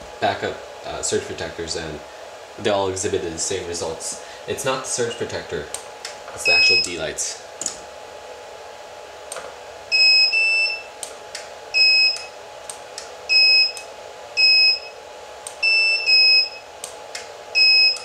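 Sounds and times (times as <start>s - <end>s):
faint steady hum: 0.0s - 18.0s
short high beeps: 6.5s - 6.9s, 17.6s - 18.0s
studio strobes firing clicks: 7.6s - 7.8s.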